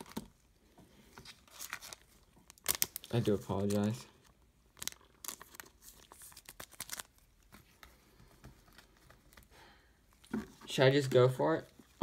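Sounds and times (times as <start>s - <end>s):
trading cards clicking and rustling: 2.6s - 4.0s.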